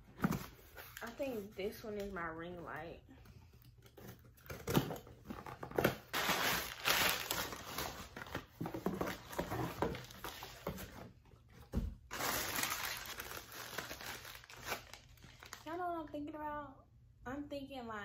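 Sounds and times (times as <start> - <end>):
packaging rustling and crinkling: 4.0 - 11.1, 12.1 - 15.7.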